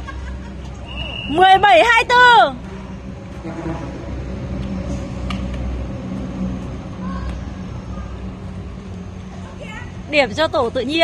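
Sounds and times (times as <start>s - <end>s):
distant voices of players: 0.4s - 10.8s
low rumble: 0.5s - 10.8s.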